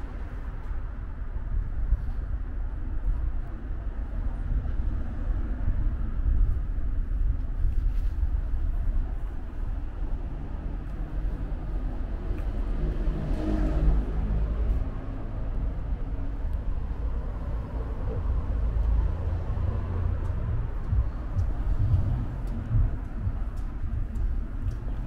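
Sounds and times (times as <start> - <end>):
low rumble of street traffic: 0.0 - 25.0
car engine passing: 10.2 - 25.0.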